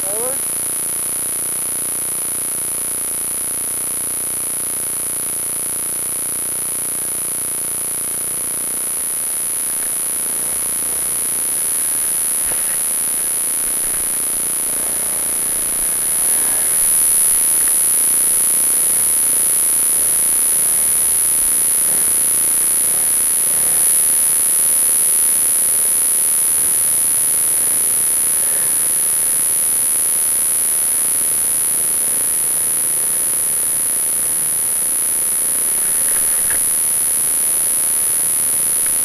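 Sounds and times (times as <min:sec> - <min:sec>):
high-pitched whine: 0:00.0 - 0:39.0
loud steady hiss: 0:00.0 - 0:39.0.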